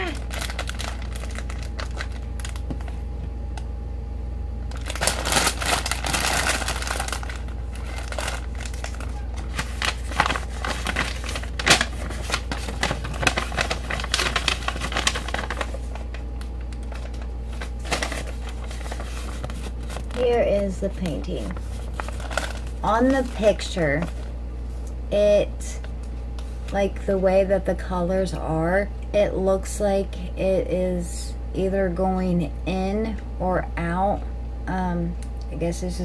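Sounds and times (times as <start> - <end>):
packaging crinkling and rustling: 0.0 - 3.1, 4.6 - 24.3
low hum: 0.0 - 36.0.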